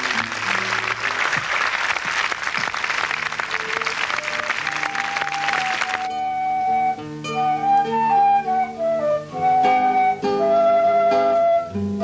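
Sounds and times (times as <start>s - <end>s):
crowd applauding: 0.0s - 6.2s
soft music of held notes: 3.5s - 12.0s.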